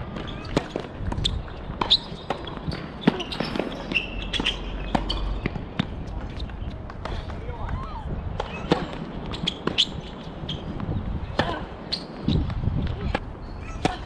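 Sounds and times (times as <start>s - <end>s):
racket hitting tennis ball: 0.2s - 7.4s, 8.4s - 10.0s
tennis ball bouncing: 0.2s - 7.4s.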